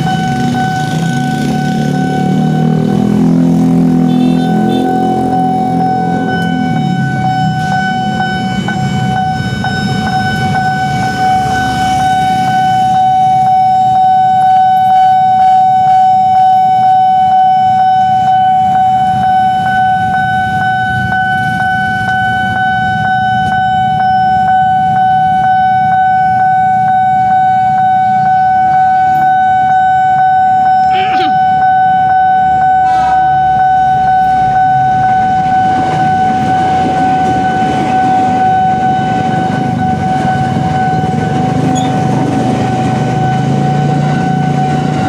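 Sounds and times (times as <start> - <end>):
level crossing alarm tone: 0.0 - 45.0.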